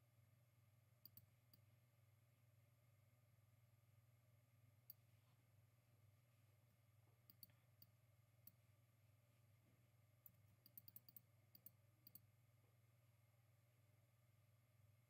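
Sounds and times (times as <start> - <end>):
computer mouse clicks: 1.0 - 1.6, 7.3 - 7.9, 10.3 - 12.2.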